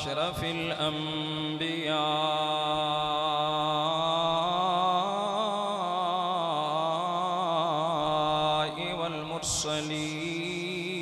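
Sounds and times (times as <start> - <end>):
man chanting a long melodic note: 0.0 - 11.0.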